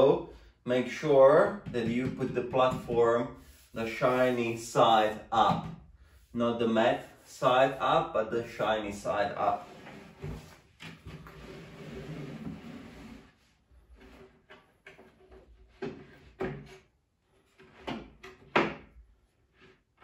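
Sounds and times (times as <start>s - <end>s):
board knocks and thumps: 1.6s - 3.2s, 5.4s - 5.9s
board scraping under belt: 9.4s - 18.2s.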